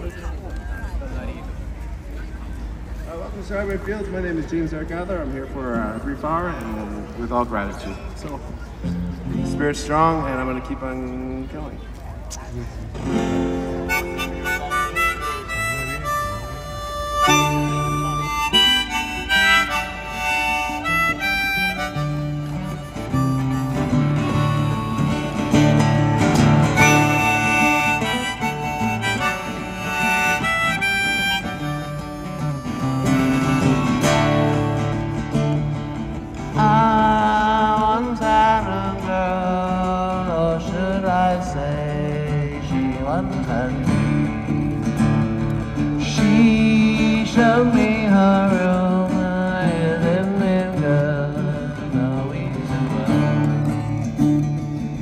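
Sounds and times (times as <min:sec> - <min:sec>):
strummed acoustic guitar: 0:12.9 - 0:55.0
harmonica melody: 0:13.2 - 0:37.1.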